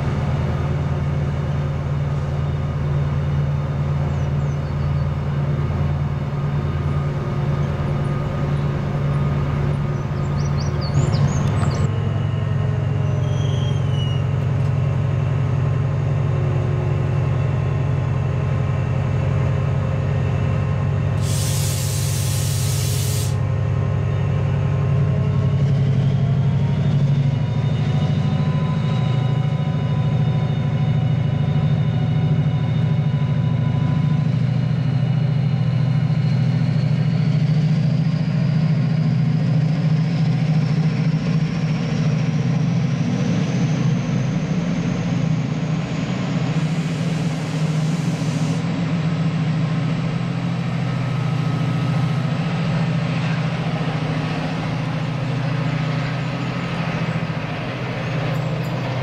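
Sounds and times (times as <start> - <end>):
diesel train engine: 0.0 - 59.0
brief hiss: 21.2 - 23.4.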